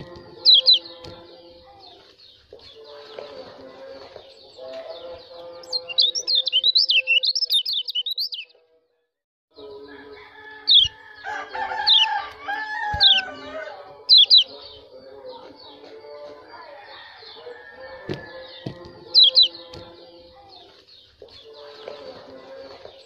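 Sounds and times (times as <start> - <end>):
drawn-out bird calls: 0.0 - 1.2, 10.6 - 19.8
bird twittering: 0.0 - 3.0, 4.3 - 8.5, 10.6 - 11.0, 11.8 - 14.9, 17.2 - 19.9
falling bird chirps: 0.0 - 8.5, 10.6 - 16.2, 17.0 - 23.0.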